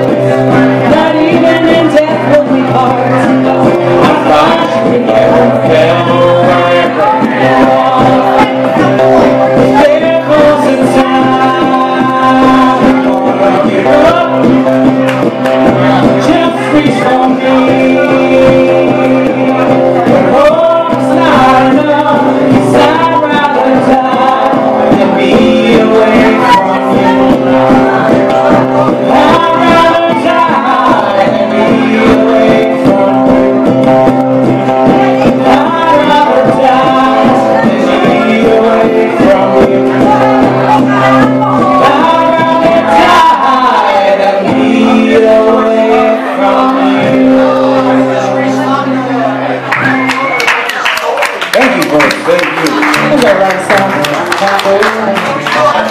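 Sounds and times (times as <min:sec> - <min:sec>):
person singing long notes: 0:00.0 - 0:49.6
acoustic guitar strumming: 0:00.0 - 0:50.7.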